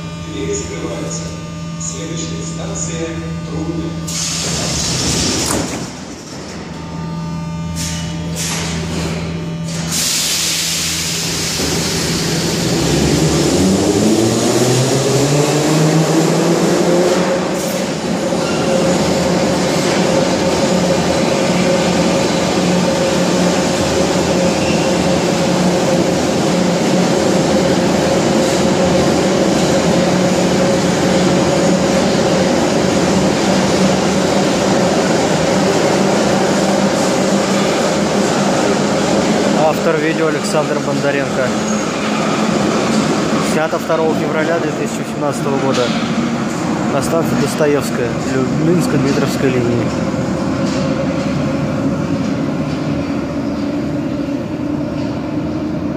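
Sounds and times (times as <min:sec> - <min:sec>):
metro train motor whine: 0:00.0 - 0:55.9
train wheel rumble: 0:09.8 - 0:55.9.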